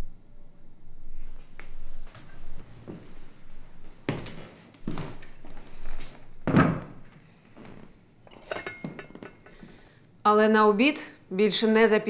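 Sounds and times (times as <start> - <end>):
wooden chair and tableware thumps: 6.5 - 6.9, 8.3 - 9.7.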